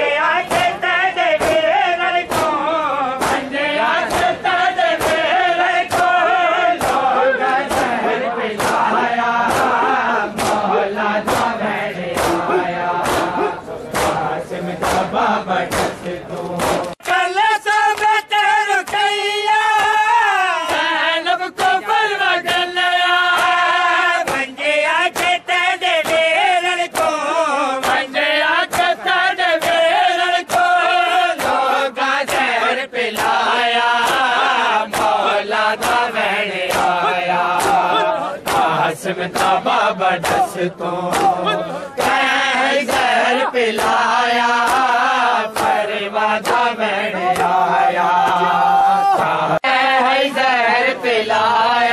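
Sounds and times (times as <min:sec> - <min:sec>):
men chanting in unison: 0:00.0 - 0:51.9
chest-beating slaps: 0:00.4 - 0:04.4, 0:05.0 - 0:17.2, 0:24.2 - 0:25.4, 0:27.8 - 0:28.0, 0:28.6 - 0:30.7, 0:31.4 - 0:31.6, 0:33.1 - 0:39.6, 0:40.2 - 0:45.8, 0:46.4 - 0:47.6, 0:48.2 - 0:49.4.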